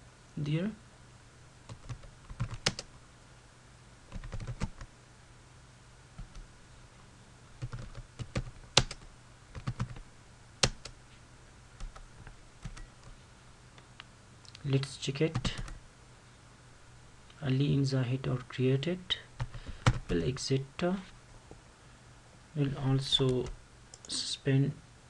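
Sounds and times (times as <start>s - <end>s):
computer keyboard keystrokes: 1.7s - 2.9s, 4.1s - 4.9s, 7.6s - 10.0s, 10.6s - 11.0s.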